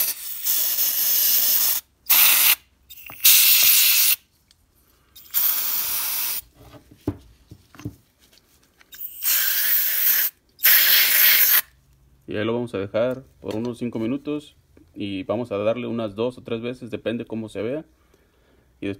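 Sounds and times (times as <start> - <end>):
aerosol can spraying hiss: 0.0 - 4.2, 5.2 - 6.4, 9.0 - 11.6.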